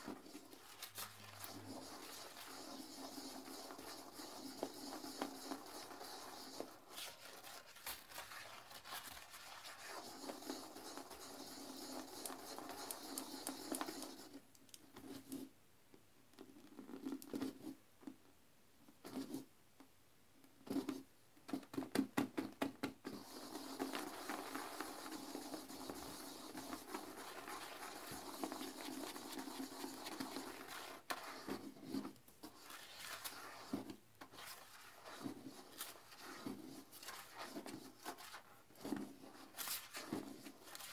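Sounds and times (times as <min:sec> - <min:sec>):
toilet brush scrubbing bowl: 0:00.0 - 0:14.4, 0:23.1 - 0:40.9.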